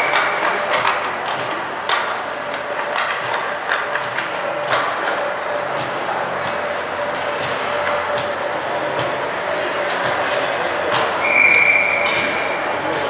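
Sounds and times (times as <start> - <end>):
hockey sticks and puck clacking: 0.0 - 9.2
echoing rink background: 0.0 - 13.0.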